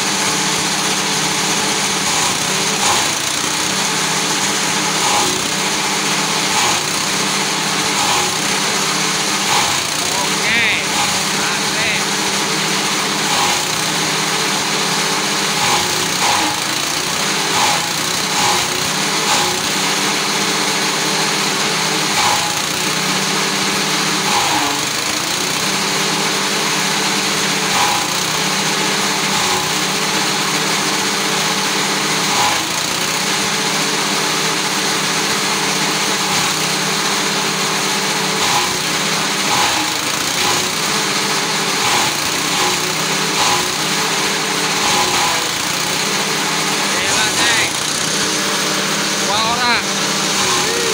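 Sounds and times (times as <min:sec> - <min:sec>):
chopper cutting stalks: 0:00.0 - 0:19.7, 0:41.7 - 0:50.9
small petrol engine running: 0:00.0 - 0:50.9.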